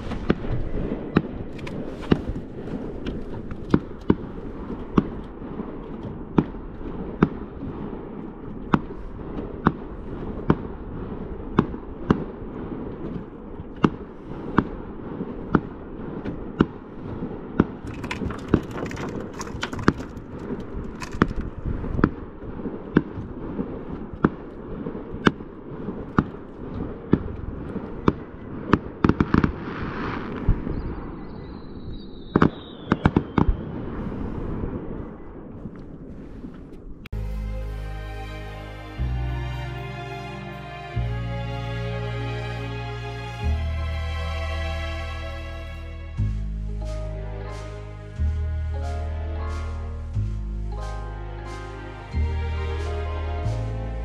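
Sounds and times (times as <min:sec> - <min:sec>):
low rumble: 0:00.0 - 0:31.9, 0:33.5 - 0:54.0
fireworks bangs: 0:00.0 - 0:37.0
crackling fireworks: 0:00.0 - 0:37.1
falling firework whistle: 0:29.3 - 0:34.0.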